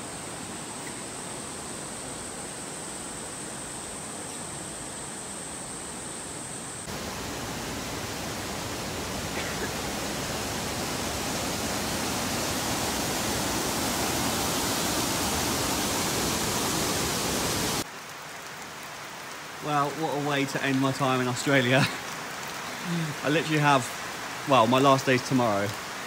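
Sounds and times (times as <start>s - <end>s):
high insect buzz: 0.0s - 17.8s
water rushing over boulders: 6.8s - 26.0s.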